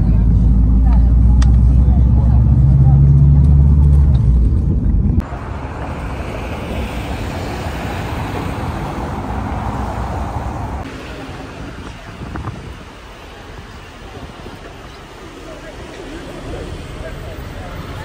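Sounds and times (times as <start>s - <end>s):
street traffic: 0.0s - 18.0s
vehicle engine hum: 0.0s - 18.0s
wind on microphone: 6.7s - 14.5s.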